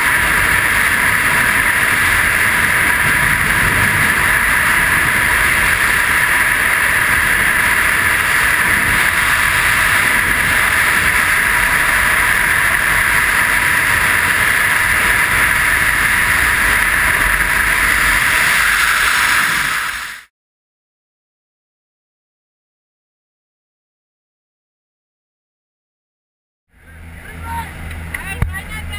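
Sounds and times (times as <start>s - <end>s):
wind rushing over microphone: 0.0s - 20.3s.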